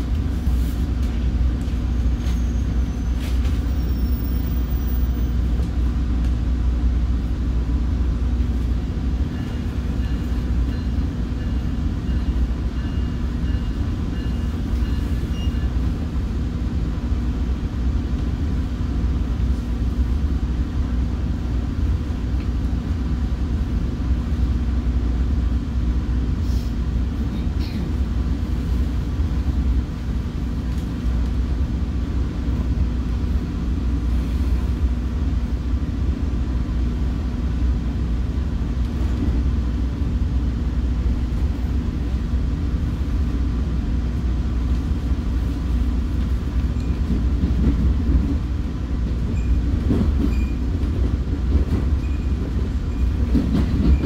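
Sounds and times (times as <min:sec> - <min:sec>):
train wheels rumbling on track: 0:00.0 - 0:54.0.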